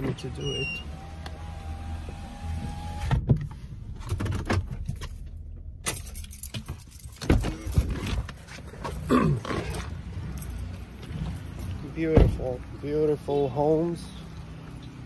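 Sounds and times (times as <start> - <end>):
keys jangling: 5.8 - 7.8, 9.7 - 10.8.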